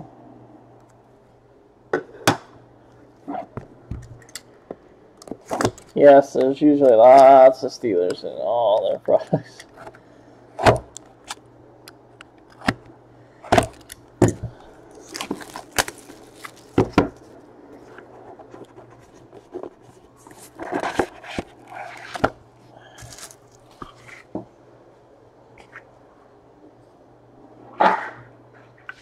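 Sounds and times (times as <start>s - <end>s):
plastic shrink wrap crinkling: 13.6s - 17.9s, 23.0s - 24.0s.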